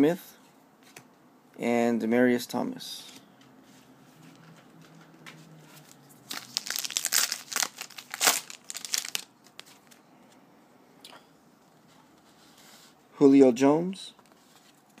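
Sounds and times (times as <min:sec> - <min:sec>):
card pack wrapper crinkling: 0:06.2 - 0:10.0.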